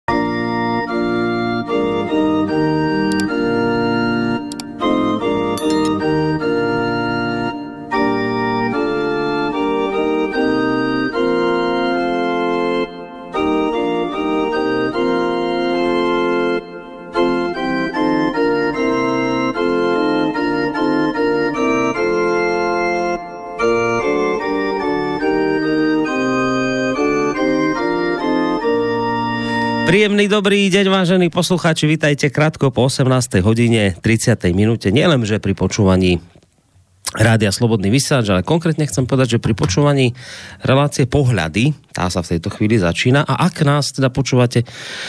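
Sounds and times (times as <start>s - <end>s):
organ playing sustained chords: 0.1s - 30.2s.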